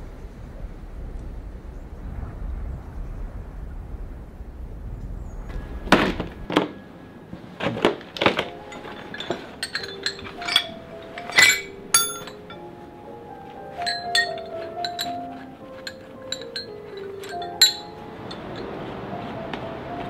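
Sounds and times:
low wind rumble: 0.0 - 20.0
steel chisels clinking: 8.3 - 12.8, 13.7 - 18.7.

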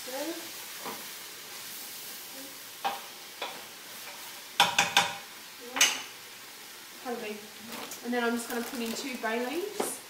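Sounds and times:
vegetables sizzling in oil: 0.0 - 10.0
spoon knocking against pot: 4.6 - 5.2.

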